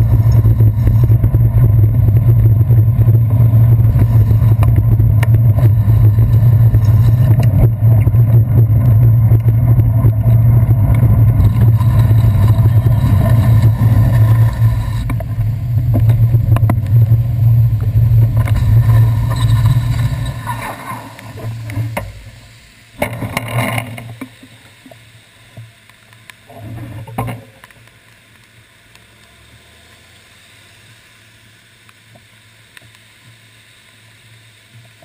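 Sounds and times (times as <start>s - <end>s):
wind and road rumble: 0.0s - 25.6s.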